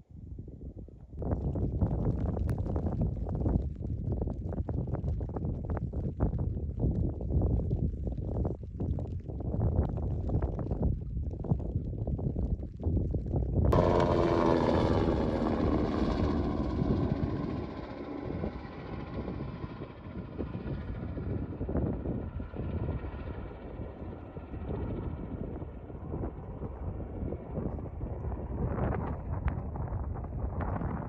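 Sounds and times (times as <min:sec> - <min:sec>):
wind rumble on microphone: 0:00.0 - 0:31.0
helicopter flying past: 0:13.7 - 0:31.0.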